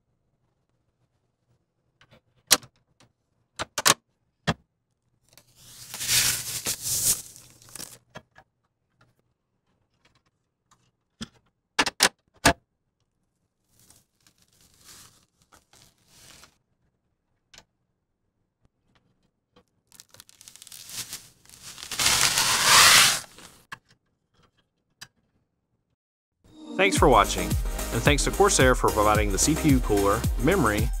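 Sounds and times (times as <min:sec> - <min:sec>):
rustling and scraping: 0:05.4 - 0:08.0, 0:13.7 - 0:16.6, 0:20.0 - 0:23.6.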